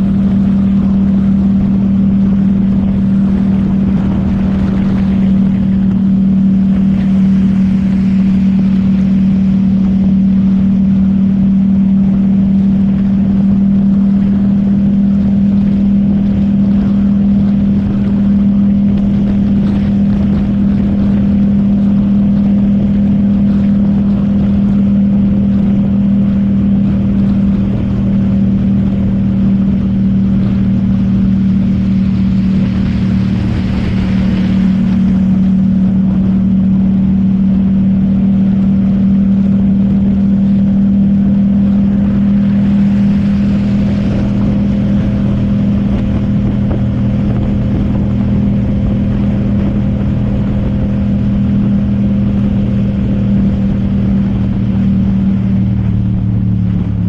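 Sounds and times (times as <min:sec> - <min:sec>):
motorcycle engine cruising: 0:00.0 - 0:57.0
wind rush: 0:00.0 - 0:57.0
wet road hiss: 0:31.8 - 0:35.4.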